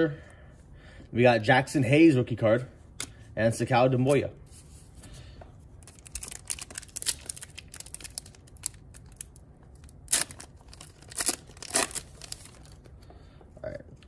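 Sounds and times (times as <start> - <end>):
foil wrapper crinkling: 5.8 - 12.8
foil pack tearing: 5.9 - 12.8.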